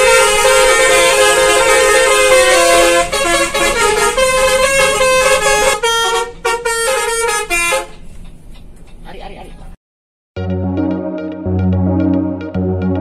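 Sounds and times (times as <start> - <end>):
bus horn playing a tune: 0.0 - 8.2.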